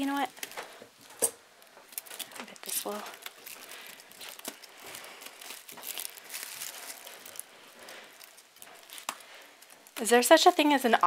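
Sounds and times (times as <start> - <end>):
tissue paper crinkling: 1.6 - 10.9.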